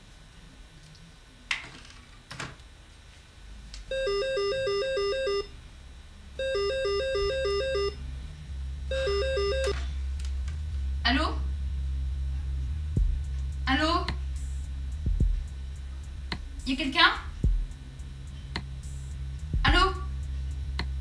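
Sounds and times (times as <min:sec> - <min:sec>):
telephone ringing with warbling trill: 0:03.9 - 0:05.5, 0:06.4 - 0:08.0, 0:08.9 - 0:09.8.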